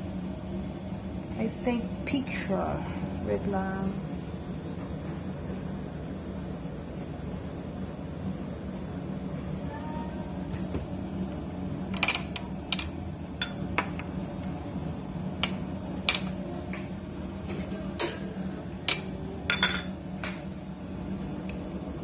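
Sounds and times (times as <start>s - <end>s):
steady low hum: 0.0s - 22.0s
ceramic spoon clinking bowls: 12.0s - 14.0s, 18.9s - 20.0s.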